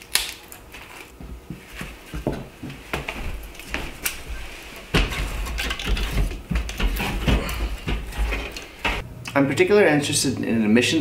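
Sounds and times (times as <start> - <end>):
firewood knocking against stove: 4.9 - 9.0.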